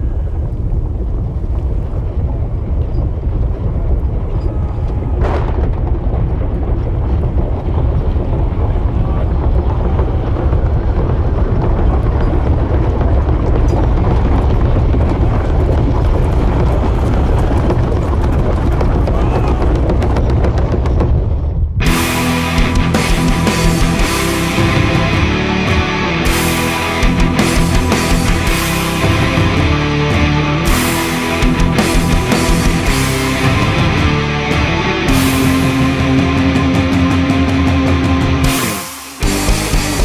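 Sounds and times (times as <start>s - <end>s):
deep rumbling storm noise: 0.0s - 40.0s
short rushing sweep: 21.6s - 40.0s.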